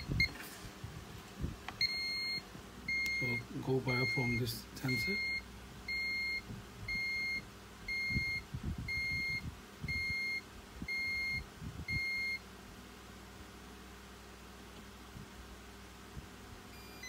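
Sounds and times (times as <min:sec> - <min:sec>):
alarm system beeps: 0:01.8 - 0:12.4.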